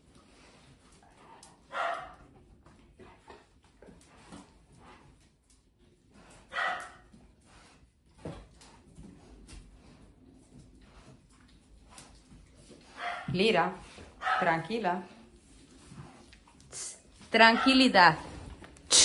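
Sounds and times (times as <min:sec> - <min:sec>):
dog barking: 0:01.7 - 0:02.2, 0:06.5 - 0:07.0, 0:13.0 - 0:13.3, 0:14.2 - 0:14.6, 0:17.5 - 0:17.8.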